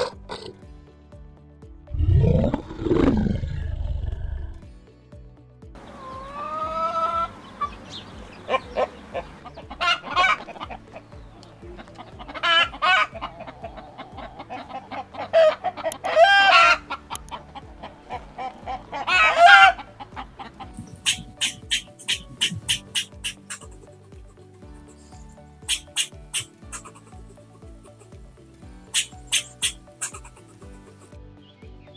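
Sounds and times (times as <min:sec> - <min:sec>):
chickens clucking: 0:05.8 - 0:28.2, 0:28.9 - 0:31.1
quick high chirps: 0:20.7 - 0:23.8, 0:25.0 - 0:27.0, 0:28.9 - 0:30.4.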